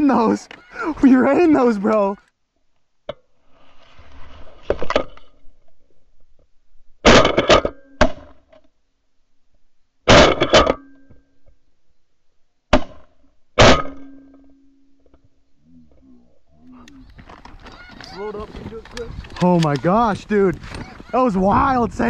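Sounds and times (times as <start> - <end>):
shotgun blasts: 12.7 - 14.2.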